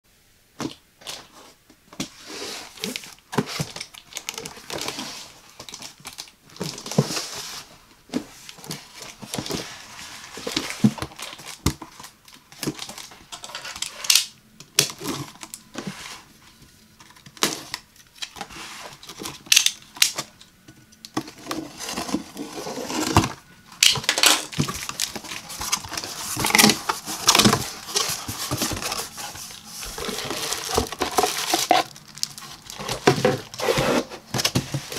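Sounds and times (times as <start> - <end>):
cardboard flaps folding open: 21.2 - 34.9
cardboard box handling: 24.4 - 34.9.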